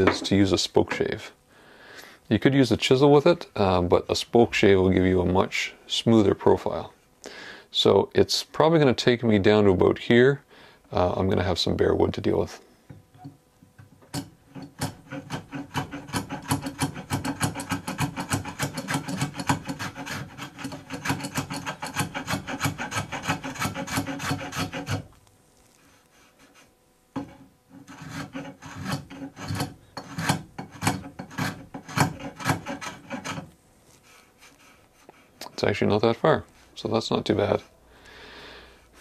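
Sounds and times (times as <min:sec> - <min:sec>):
spokeshave scraping wood: 0:14.5 - 0:35.8.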